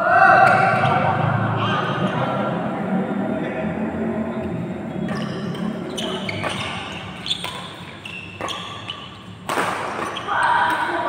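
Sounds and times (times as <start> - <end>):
racket striking shuttlecock: 5.0 - 11.0.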